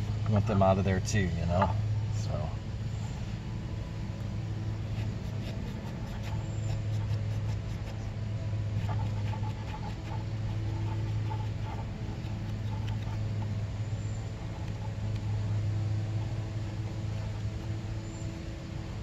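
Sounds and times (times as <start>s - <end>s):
low steady hum: 0.0s - 19.0s
cloth rag rubbing metal: 8.8s - 13.5s.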